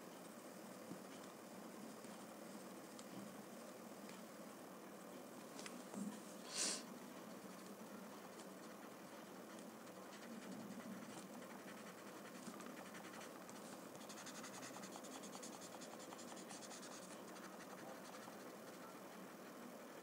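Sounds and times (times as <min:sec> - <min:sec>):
scratchy rubbing on paper: 0:08.5 - 0:19.6.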